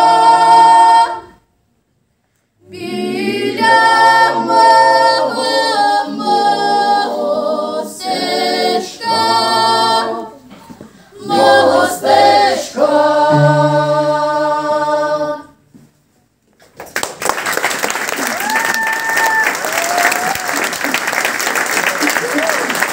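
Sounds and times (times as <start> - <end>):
choir singing a cappella: 0.0 - 1.5, 2.6 - 15.7
audience applause: 16.8 - 22.9.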